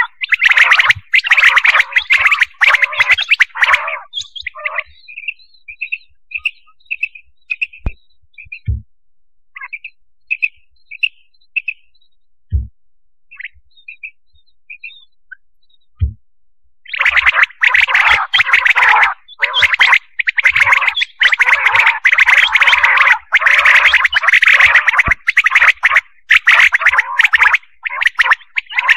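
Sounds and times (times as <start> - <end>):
quail calling: 0.0 - 7.9, 16.9 - 28.9
low thumps: 12.5 - 12.7, 16.0 - 16.2.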